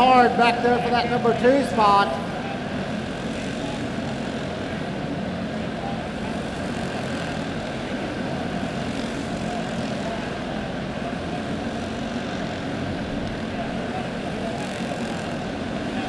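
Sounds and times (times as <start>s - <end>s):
kart engines buzzing: 0.0s - 16.0s.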